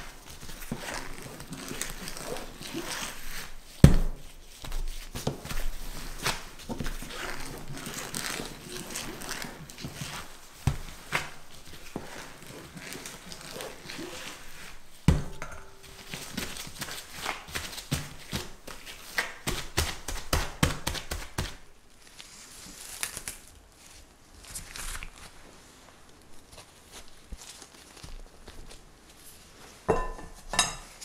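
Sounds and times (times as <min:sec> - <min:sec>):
hands patting dough: 0:00.0 - 0:21.8
plastic wrap crinkling: 0:00.0 - 0:29.8.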